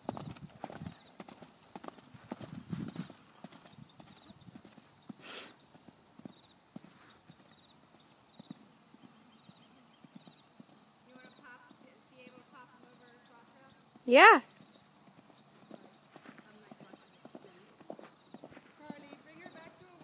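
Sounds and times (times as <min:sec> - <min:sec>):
horse hoofbeats on sand: 0:00.0 - 0:05.2, 0:14.6 - 0:20.0.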